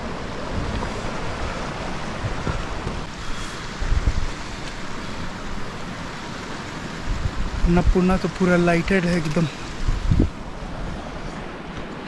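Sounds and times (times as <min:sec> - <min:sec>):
wind buffeting microphone: 0:00.0 - 0:08.4, 0:09.3 - 0:12.0
mountain stream rushing: 0:00.0 - 0:12.0.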